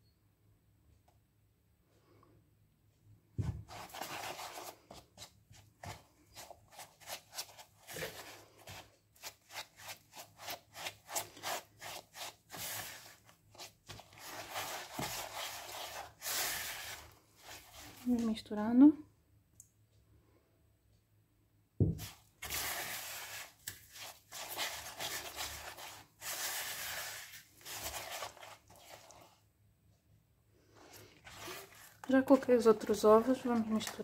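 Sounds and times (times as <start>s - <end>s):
spatula scraping plastic bowl: 3.4s - 18.3s, 22.0s - 29.4s, 30.8s - 34.0s
knock: 21.8s - 22.0s.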